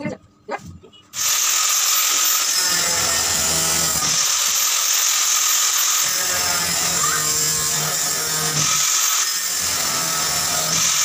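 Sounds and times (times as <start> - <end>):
angle grinder cutting metal: 1.2 - 11.0.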